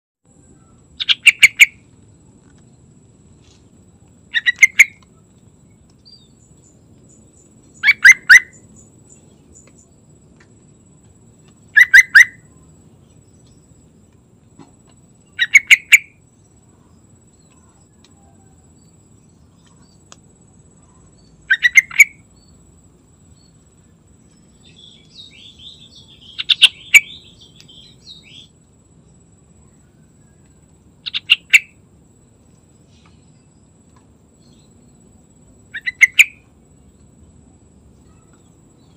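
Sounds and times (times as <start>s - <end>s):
soft bird chattering: 0.6s - 1.8s, 4.3s - 5.2s, 7.8s - 8.7s, 11.7s - 12.6s, 15.3s - 16.2s, 20.9s - 22.2s, 24.6s - 28.5s, 31.0s - 31.8s, 35.7s - 36.5s.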